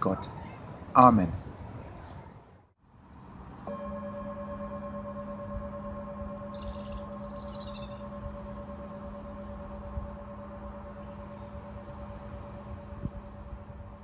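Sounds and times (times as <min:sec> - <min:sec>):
birds chirping: 0:02.9 - 0:14.0
singing bowl ringing: 0:03.7 - 0:14.0.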